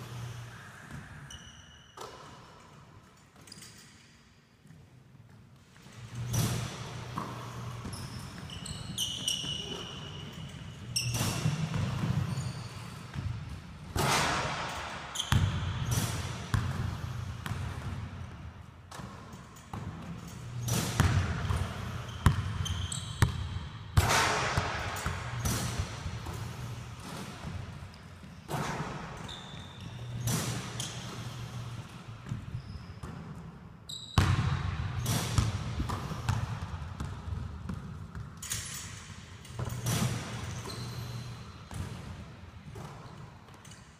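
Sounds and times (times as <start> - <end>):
sneakers squeaking: 0.1 - 2.7, 3.4 - 4.9, 5.6 - 43.9
ball striking rim and backboard: 11.0 - 12.4, 13.1 - 18.1, 18.9 - 27.6, 34.2 - 39.0, 41.7 - 42.1
basketballs bouncing on wood floor: 20.8 - 26.6, 34.2 - 38.3.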